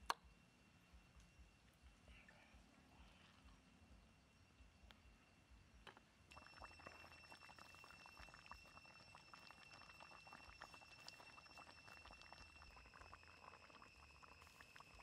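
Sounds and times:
curry bubbling and popping: 0:05.8 - 0:15.0.

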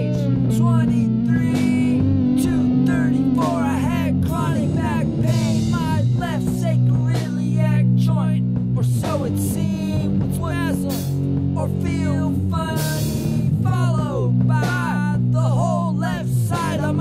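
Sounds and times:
rock song with guitar and bass: 0:00.0 - 0:17.0.

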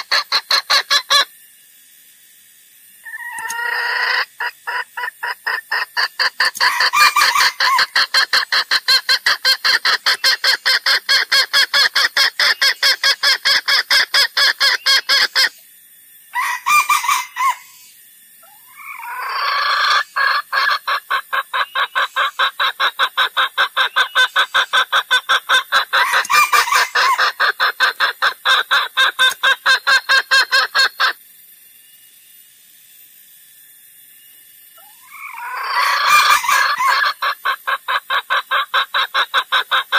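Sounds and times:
junglefowl clucking: 0:00.0 - 0:01.3, 0:03.0 - 0:15.6, 0:16.4 - 0:17.8, 0:18.4 - 0:31.2, 0:34.8 - 0:39.9.

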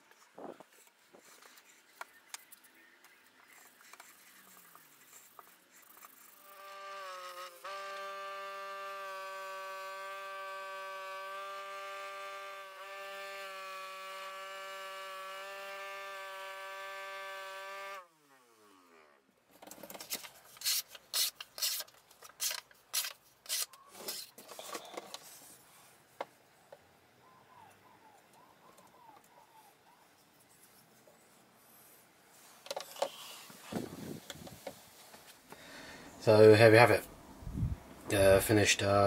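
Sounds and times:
bench grinder motor whine: 0:06.6 - 0:18.1
blade rubbing on a strip: 0:20.5 - 0:24.4.

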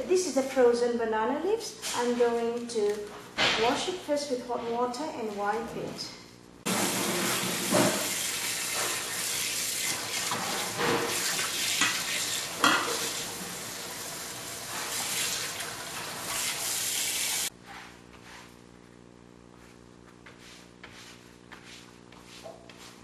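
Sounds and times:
tap water running into sink: 0:06.7 - 0:17.5.

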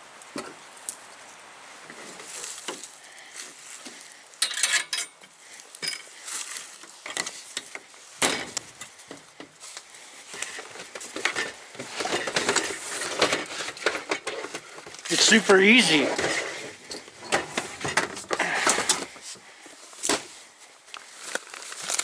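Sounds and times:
camp gear clattering and knocking: 0:01.8 - 0:22.0.

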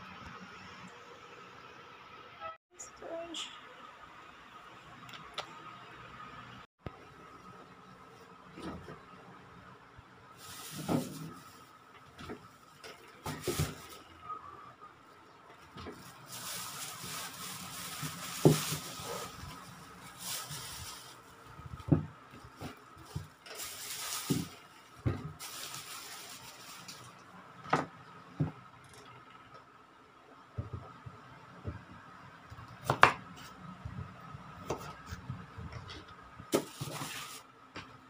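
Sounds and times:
plastic bag rustling: 0:10.4 - 0:14.2, 0:15.7 - 0:27.3, 0:36.5 - 0:37.5.

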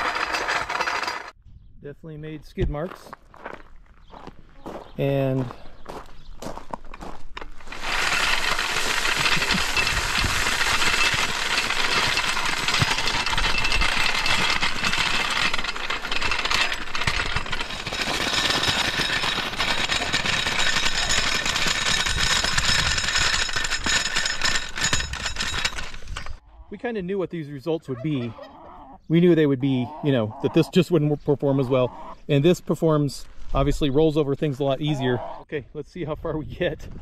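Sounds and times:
floor jack wheels scraping on gravel: 0:00.0 - 0:01.4, 0:04.6 - 0:26.4.

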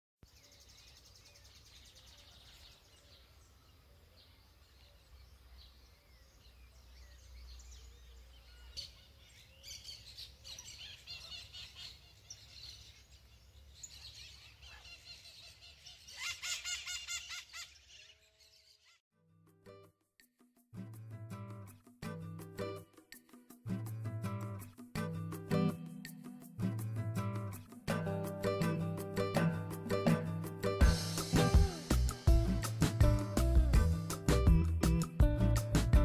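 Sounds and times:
birds chirping: 0:00.2 - 0:19.0.

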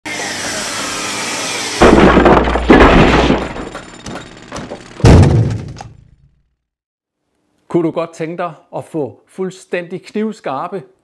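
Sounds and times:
loud impacts: 0:01.8 - 0:06.3.

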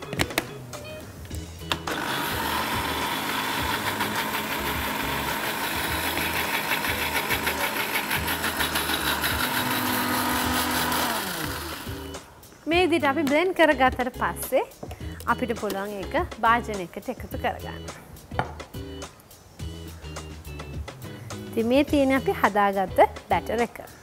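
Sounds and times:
electric blender running: 0:01.7 - 0:12.2.

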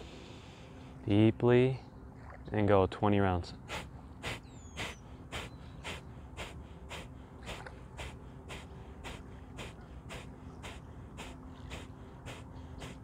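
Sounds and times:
forceful nasal exhales: 0:03.7 - 0:13.0.

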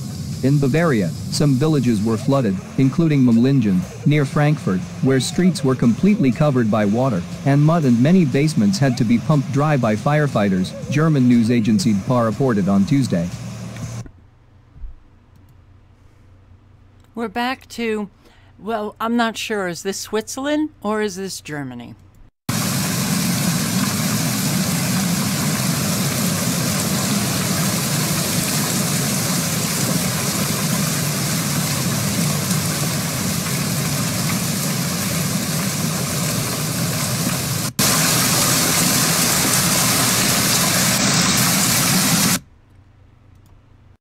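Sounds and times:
hail and heavy rain pelting: 0:22.5 - 0:42.4.

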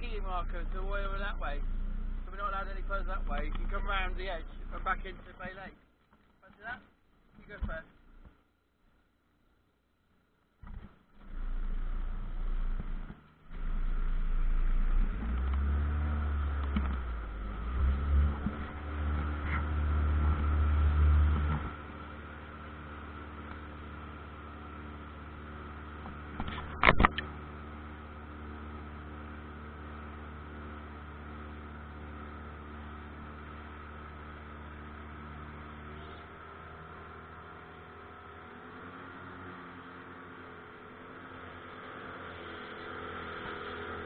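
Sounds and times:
outboard motor running: 0:00.0 - 0:05.8, 0:10.6 - 0:44.0
brief clatter: 0:26.3 - 0:27.3.

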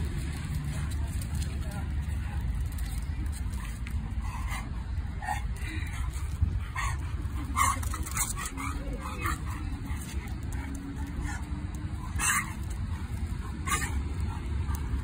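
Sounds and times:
dogs play-fighting vocalizing: 0:03.3 - 0:15.0.

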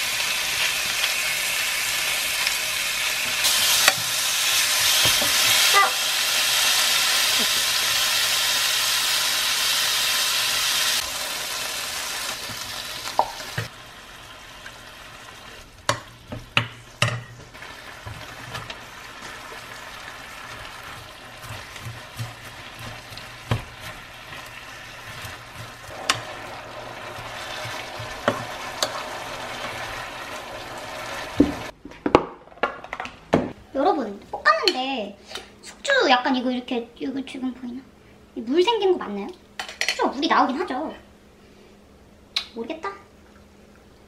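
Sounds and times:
food sizzling in a pan: 0:00.0 - 0:31.7.

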